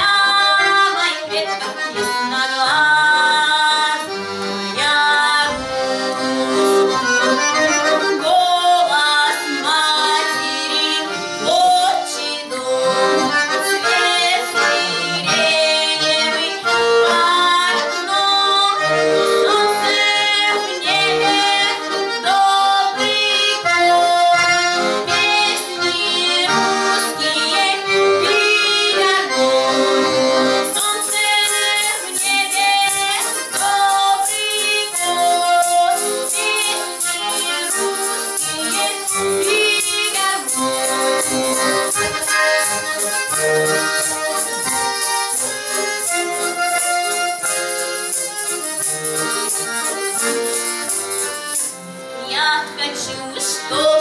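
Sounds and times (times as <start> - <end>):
woman singing: 0.0 - 4.1, 4.7 - 5.7, 8.1 - 29.6, 30.6 - 41.0, 52.2 - 54.0
button accordion playing folk tune: 0.0 - 54.0
tambourine jingling: 30.5 - 52.0.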